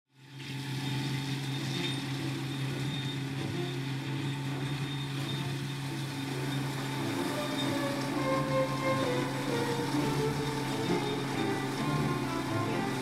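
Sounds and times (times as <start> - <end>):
tractor diesel engine running: 1.2 - 13.0.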